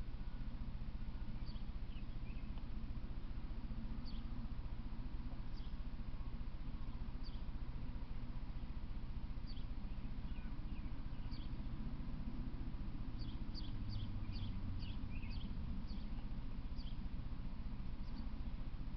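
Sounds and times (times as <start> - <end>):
steady low rumble: 0.0 - 18.9
small bird chirping: 1.2 - 2.6, 4.0 - 4.3, 5.5 - 5.8, 6.8 - 7.5, 9.4 - 11.7, 13.2 - 17.1, 18.0 - 18.4.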